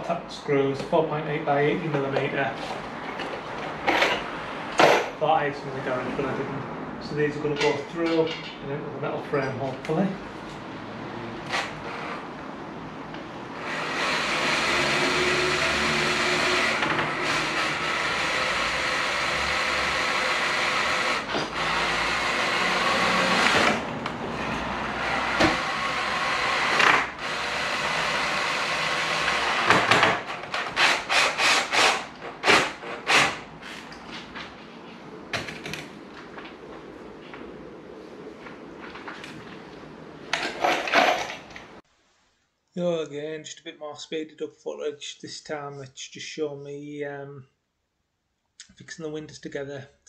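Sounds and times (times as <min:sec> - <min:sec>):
electric drill driving screws: 0:13.6 - 0:23.9, 0:24.6 - 0:33.4.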